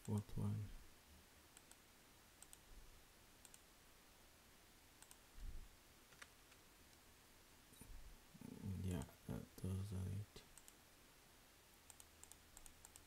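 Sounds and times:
computer mouse clicks: 1.6s - 1.8s, 2.4s - 2.6s, 3.4s - 3.6s, 5.0s - 5.2s, 10.5s - 10.8s, 11.9s - 13.0s.

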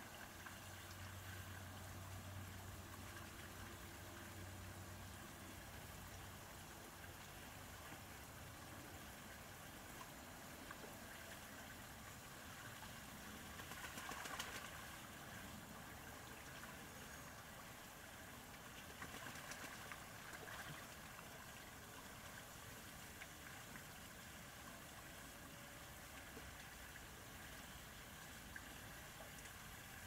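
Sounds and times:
steady low hiss: 0.0s - 30.0s
ducks splashing in water: 13.4s - 15.0s, 18.8s - 21.1s.

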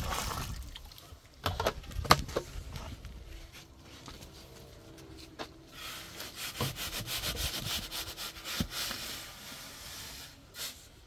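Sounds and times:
scraping strokes on wood: 5.2s - 10.8s.

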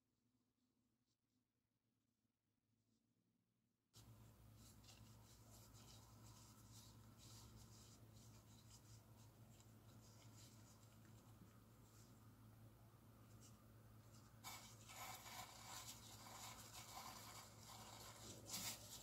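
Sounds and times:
gloved hands rustling: 4.0s - 12.3s
steady low hum: 4.0s - 19.0s.

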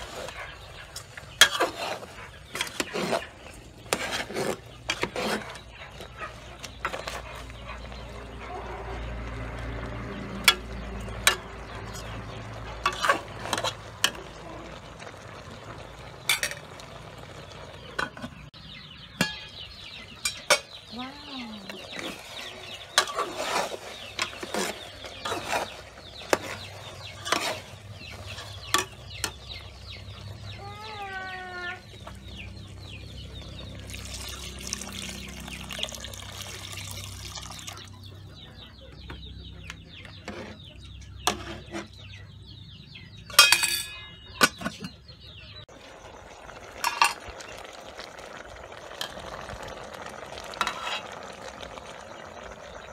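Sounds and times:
chickens clucking: 0.0s - 33.8s, 37.7s - 47.6s
spoon clinking on metal pot: 43.3s - 44.8s
pot lid clanking: 43.3s - 45.0s.

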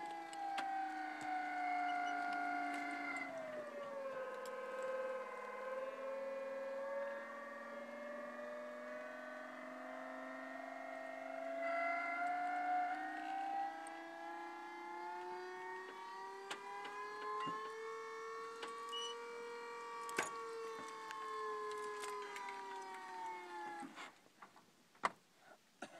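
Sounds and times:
lift mechanism whining: 0.0s - 24.0s.

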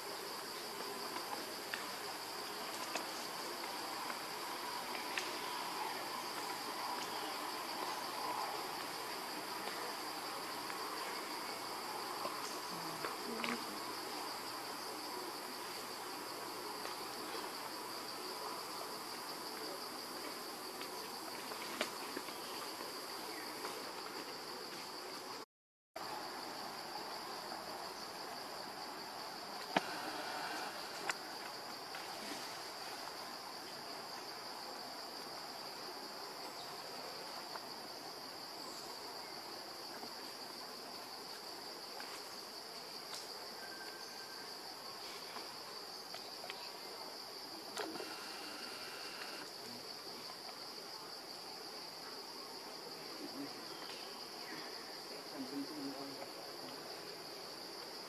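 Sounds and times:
insects buzzing drone: 26.0s - 37.4s, 46.6s - 50.0s.

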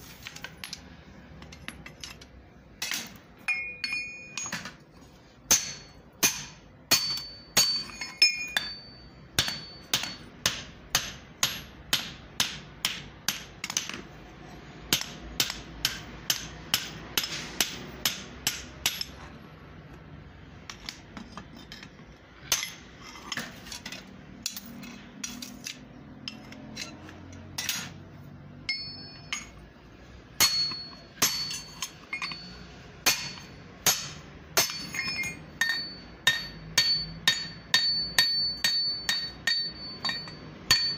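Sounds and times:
hammer striking steel pin: 2.8s - 4.8s, 5.5s - 14.0s, 14.9s - 19.3s, 28.6s - 40.9s.

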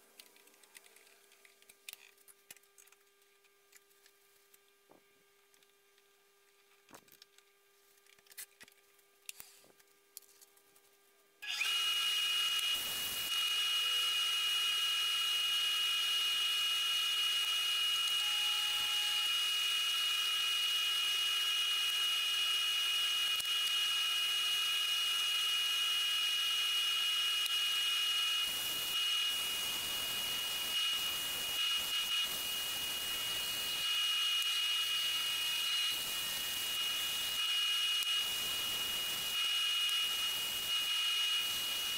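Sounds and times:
wood lathe motor whine: 11.4s - 41.9s.

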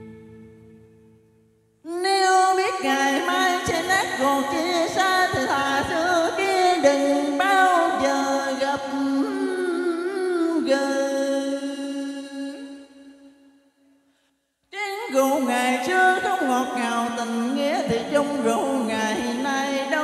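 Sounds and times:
man singing into a microphone: 2.8s - 12.6s.

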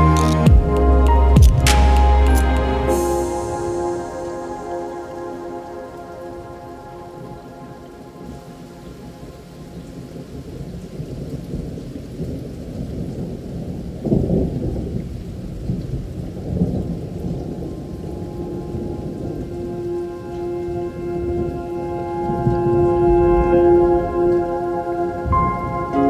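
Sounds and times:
held synth tones: 0.0s - 9.6s, 18.1s - 26.0s
rain: 0.0s - 26.0s
thunder rumble: 0.0s - 26.0s.

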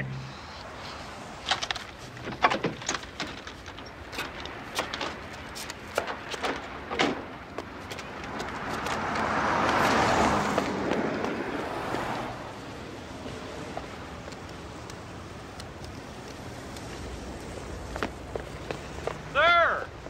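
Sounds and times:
sharp clicks and knocks: 1.4s - 9.8s
car passing: 6.7s - 20.0s.

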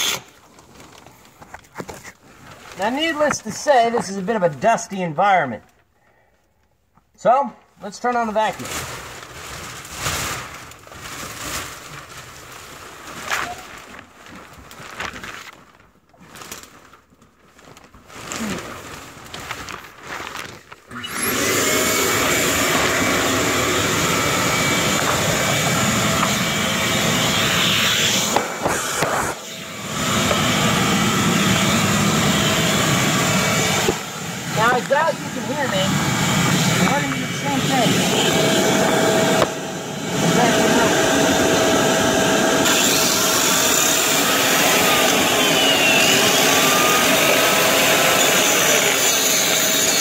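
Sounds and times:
shop vacuum running with whine: 0.0s - 0.2s, 20.9s - 50.0s.

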